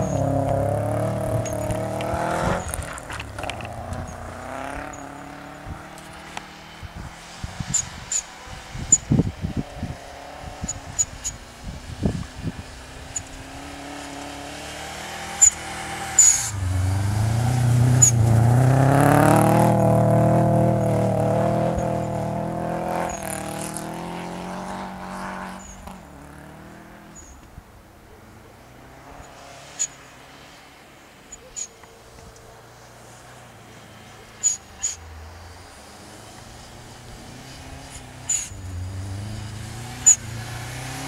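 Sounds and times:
car engine revving hard: 0:00.0 - 0:07.8, 0:12.4 - 0:27.1, 0:35.7 - 0:41.0.

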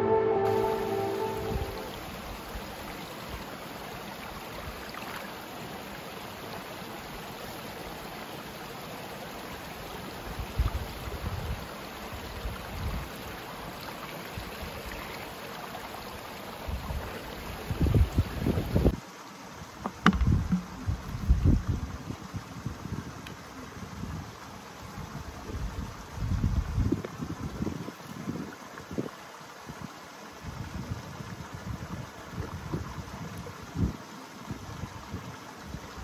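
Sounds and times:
stream rushing over stones: 0:00.2 - 0:36.0
water bag bumping in water: 0:19.8 - 0:20.9.

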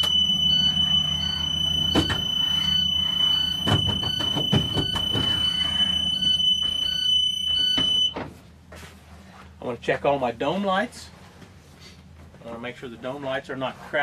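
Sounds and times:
high-pitched door alarm buzz: 0:00.0 - 0:08.2
door knocks: 0:03.6 - 0:05.4.

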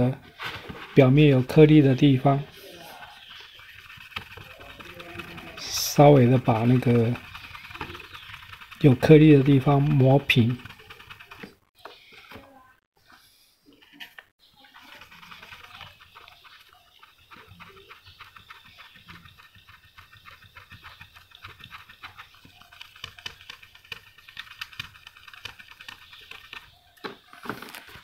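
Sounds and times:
sanding pad scrubbing plastic: 0:00.4 - 0:11.7, 0:14.6 - 0:28.0.

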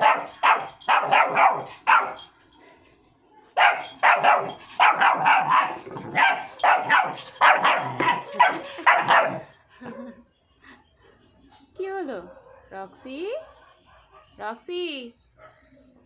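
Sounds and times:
puppy barking: 0:00.0 - 0:02.3, 0:03.6 - 0:09.5, 0:12.2 - 0:12.7, 0:13.4 - 0:14.4, 0:15.4 - 0:15.7.

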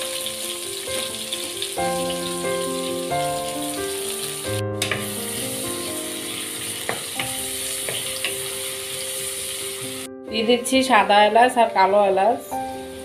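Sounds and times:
onions sizzling in oil: 0:00.0 - 0:10.1, 0:12.5 - 0:13.0
soft background music: 0:00.0 - 0:13.0.

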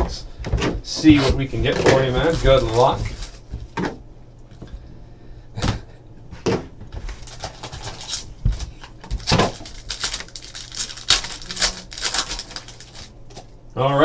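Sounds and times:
plastic wrap crinkling: 0:01.4 - 0:03.8, 0:07.1 - 0:13.5.

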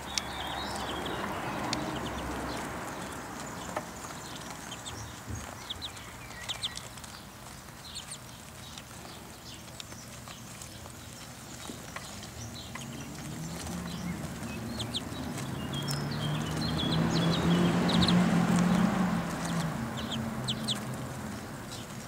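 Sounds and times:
ducklings peeping: 0:00.0 - 0:22.0.

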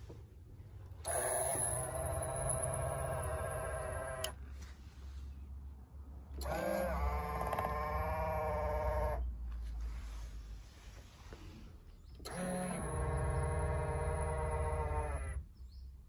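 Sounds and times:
electric mirror motor whining: 0:00.9 - 0:04.4, 0:06.4 - 0:09.3, 0:12.2 - 0:15.5.

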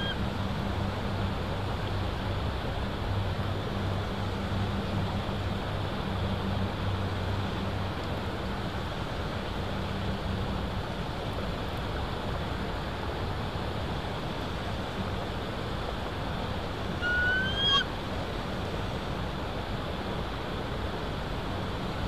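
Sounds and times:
whistled bird call: 0:00.0 - 0:00.2, 0:17.0 - 0:17.9
rushing wind: 0:00.0 - 0:22.0.

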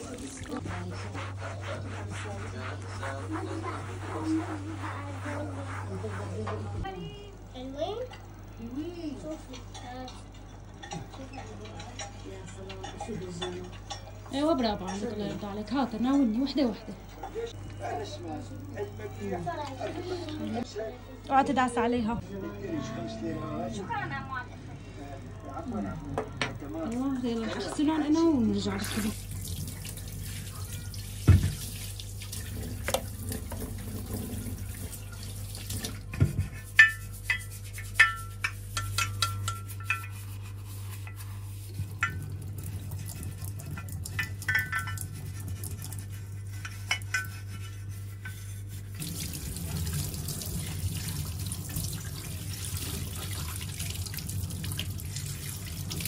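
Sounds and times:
glass being rubbed by hand: 0:00.1 - 0:06.9, 0:36.1 - 0:42.2, 0:44.2 - 0:49.1
tap water running into metal sink: 0:28.8 - 0:36.4, 0:41.9 - 0:46.0, 0:49.0 - 0:56.0.

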